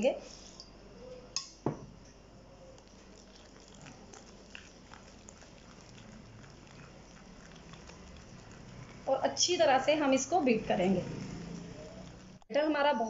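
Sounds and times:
whisk beating batter in a bowl: 2.9 - 12.5.

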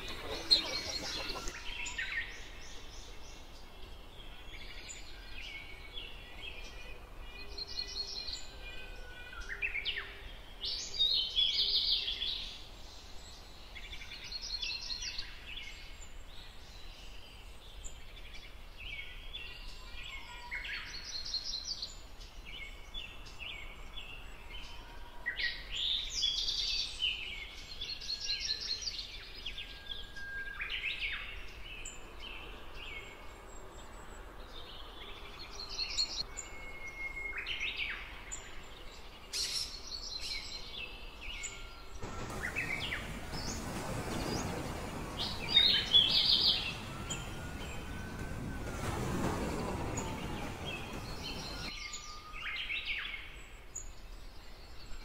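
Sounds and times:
rattling bird trills: 0.0 - 1.6
small birds chirping: 0.0 - 8.6, 37.4 - 52.1.

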